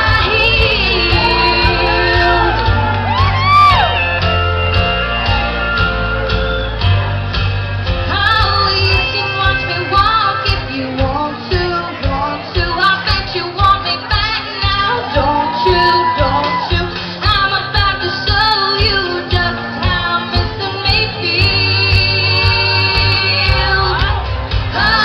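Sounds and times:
woman singing into a microphone: 0:00.0 - 0:02.9, 0:08.1 - 0:25.0
backing music: 0:00.0 - 0:25.0.

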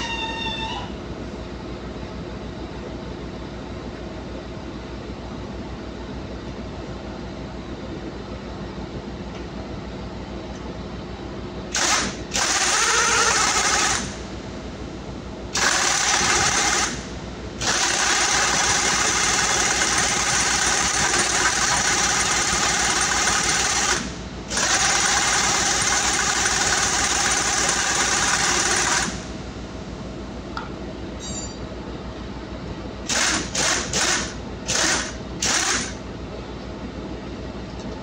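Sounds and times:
machinery hum: 0:00.0 - 0:38.0
pneumatic impact wrench hammering: 0:11.7 - 0:14.2, 0:15.5 - 0:17.0, 0:17.6 - 0:29.2, 0:33.0 - 0:36.0.

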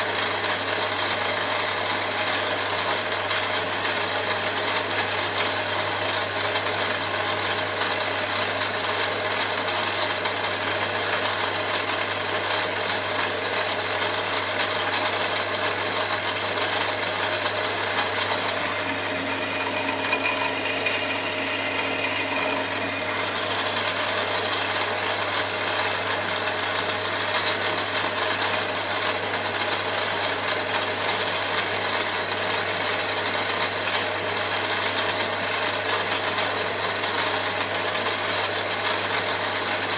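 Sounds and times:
milling machine running: 0:00.0 - 0:39.9
cutter cutting metal: 0:17.2 - 0:25.3.

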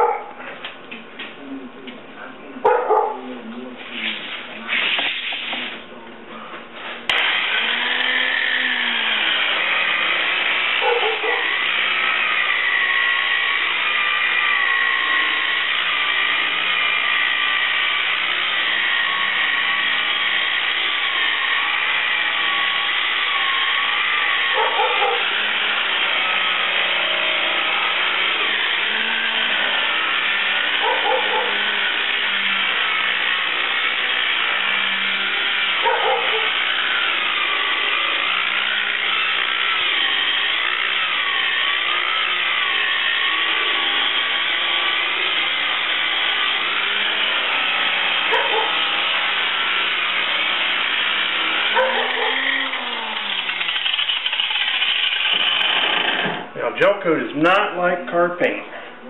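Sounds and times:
electric polisher motor whine: 0:07.1 - 0:56.6.

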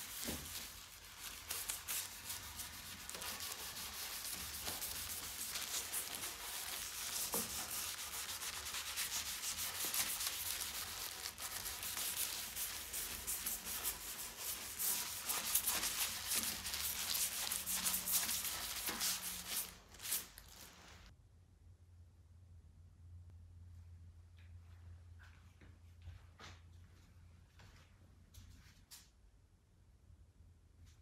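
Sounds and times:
gloved hand rubbing wood: 0:00.0 - 0:21.1.

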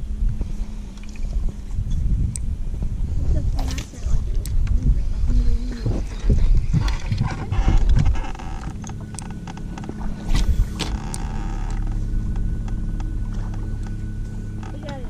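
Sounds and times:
electric trolling motor hum: 0:00.0 - 0:15.0
fishing line cast swishing: 0:10.1 - 0:11.0
fishing reel winding: 0:11.0 - 0:12.0.

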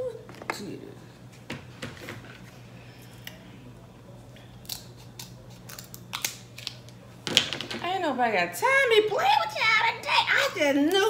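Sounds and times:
scissors cracking crab shell: 0:04.6 - 0:07.0.

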